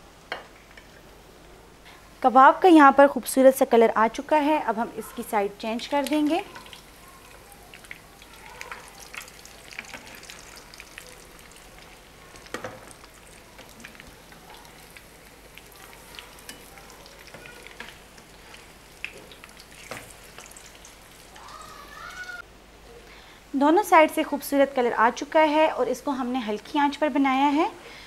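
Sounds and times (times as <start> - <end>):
food sizzling in oil: 4.1 - 22.4.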